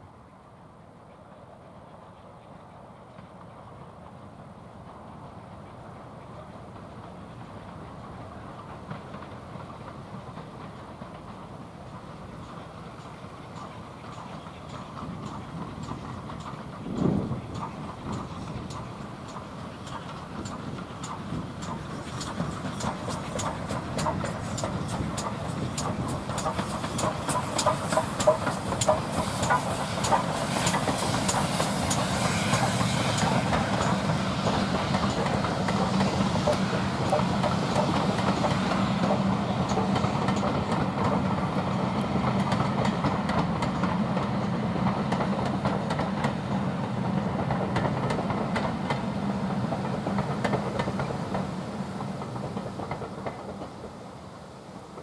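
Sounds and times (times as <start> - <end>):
train wheels clicking over rail joints: 4.8 - 54.1
steam locomotive exhaust beats: 4.8 - 55.0.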